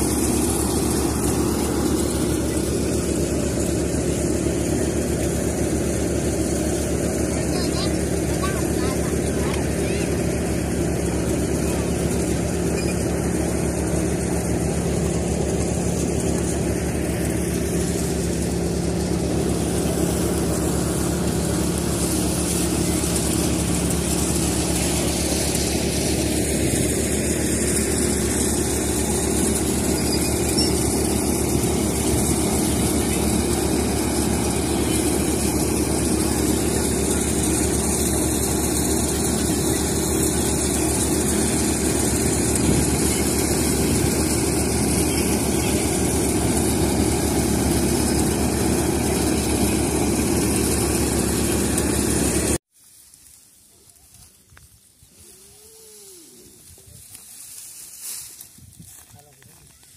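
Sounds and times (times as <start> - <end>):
tractor engine running: 0.0 - 52.7
threshing machine humming: 0.0 - 59.9.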